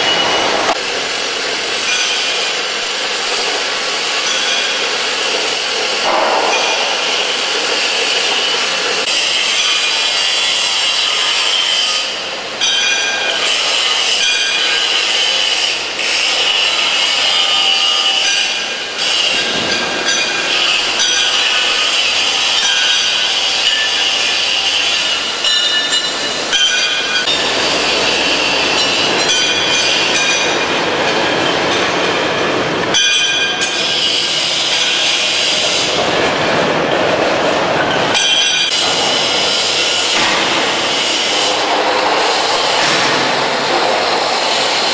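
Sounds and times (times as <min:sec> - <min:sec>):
power tools grinding steel: 0:00.0 - 0:31.7.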